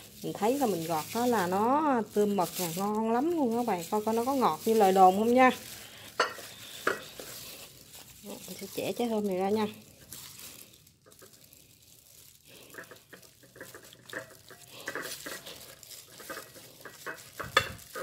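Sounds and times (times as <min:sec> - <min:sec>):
plastic gloves crackling: 0:00.0 - 0:18.0.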